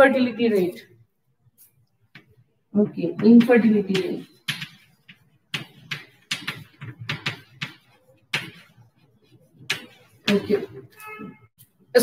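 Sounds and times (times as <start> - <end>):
chalk tapping on blackboard: 2.0 - 10.9.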